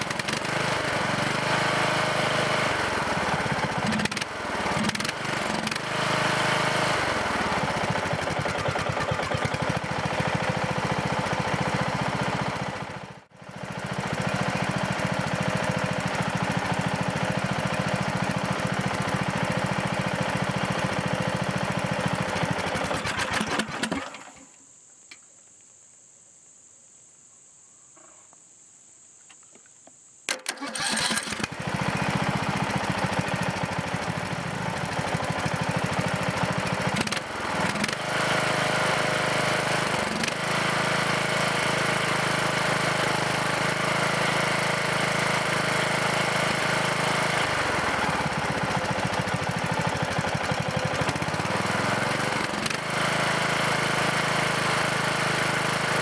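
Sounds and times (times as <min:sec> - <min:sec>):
engine winding down: 0:00.0 - 0:24.4, 0:30.4 - 0:56.0
lawn tractor engine running: 0:00.0 - 0:24.4, 0:30.3 - 0:56.0
engine cranking and starting: 0:03.7 - 0:10.4, 0:22.1 - 0:24.5, 0:30.3 - 0:42.3.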